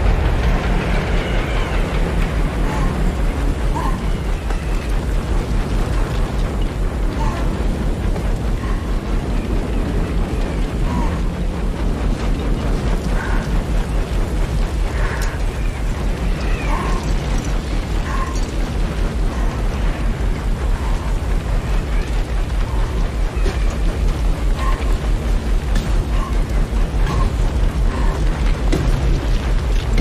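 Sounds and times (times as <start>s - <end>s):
blizzard wind whistling: 0.0s - 30.0s
deep pulsing rumble: 0.0s - 30.0s.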